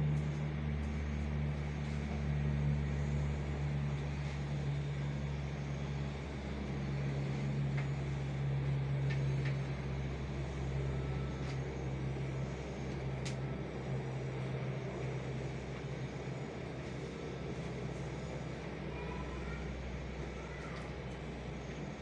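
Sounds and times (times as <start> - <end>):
low mechanical hum: 0.0 - 22.0.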